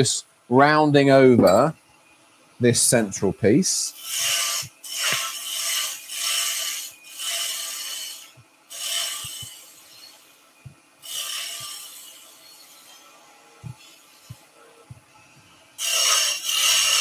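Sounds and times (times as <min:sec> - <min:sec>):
lathe tool scraping wood: 0:04.0 - 0:10.2, 0:15.8 - 0:17.0.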